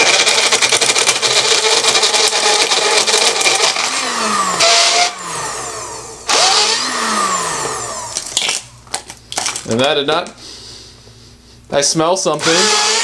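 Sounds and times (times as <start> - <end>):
blender motor running: 0.0 - 8.4, 12.4 - 13.0.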